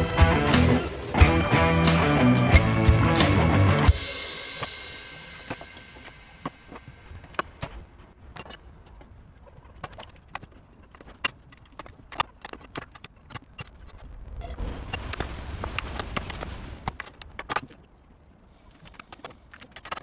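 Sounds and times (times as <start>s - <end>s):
background music: 0.0s - 7.4s
hand tools clinking on metal: 4.6s - 9.0s.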